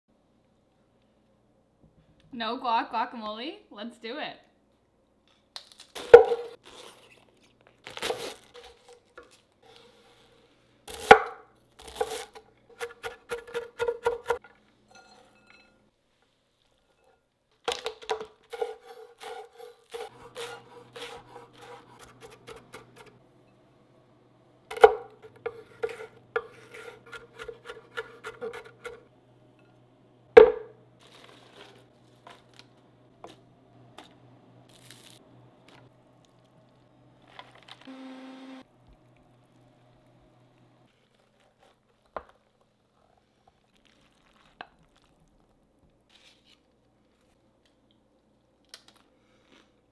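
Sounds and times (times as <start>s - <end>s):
knife chopping on wooden board: 6.1s - 6.5s, 24.7s - 29.0s, 30.4s - 30.7s.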